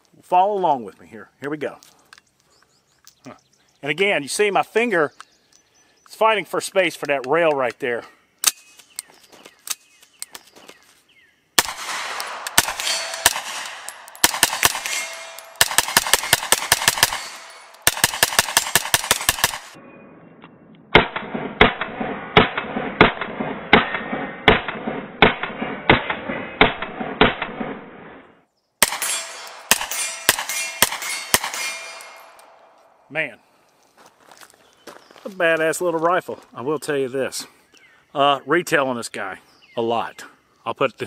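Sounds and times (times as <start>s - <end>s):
rapid gunshots: 11.6s - 19.8s, 28.8s - 32.3s.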